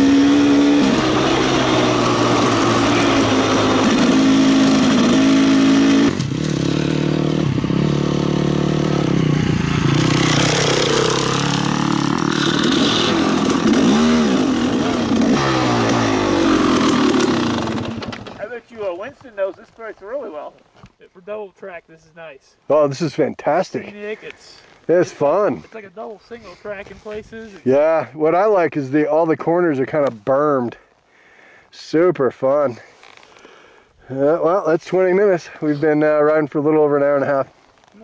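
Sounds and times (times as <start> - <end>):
two-stroke dirt bike engine: 0.0 - 18.5.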